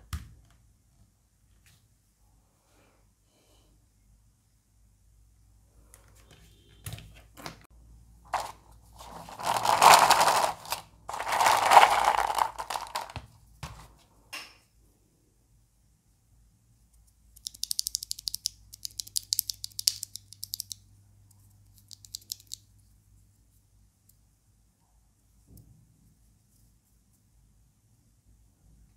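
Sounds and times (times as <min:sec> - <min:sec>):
scraping noises: 0:08.3 - 0:13.1
keyboard parts clicking: 0:17.4 - 0:20.8, 0:21.7 - 0:22.6.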